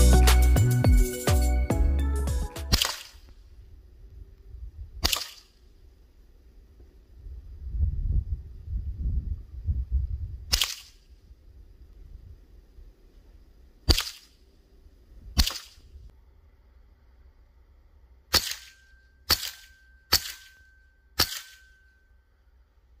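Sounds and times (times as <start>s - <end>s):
air rifle shots: 2.7s - 3.3s, 5.0s - 5.6s, 10.5s - 11.0s, 13.9s - 14.4s, 15.4s - 15.8s, 18.3s - 21.8s.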